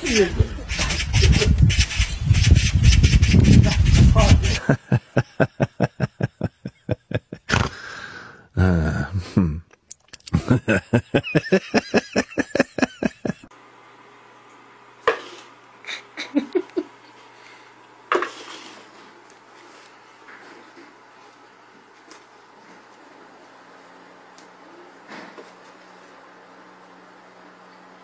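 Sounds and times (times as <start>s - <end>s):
person laughing hard: 4.4s - 7.9s, 8.6s - 13.5s, 15.9s - 17.0s.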